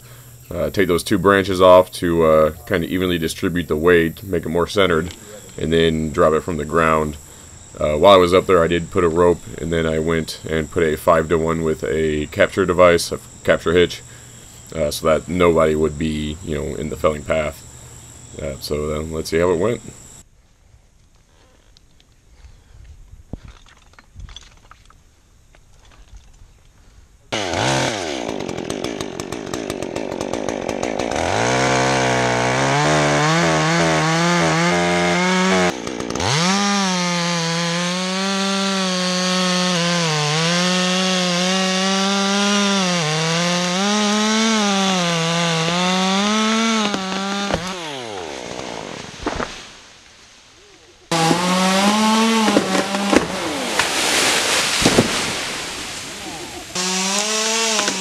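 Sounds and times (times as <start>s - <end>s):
chainsaw revving and cutting wood: 4.4s - 20.2s, 27.3s - 49.6s, 51.1s - 58.0s.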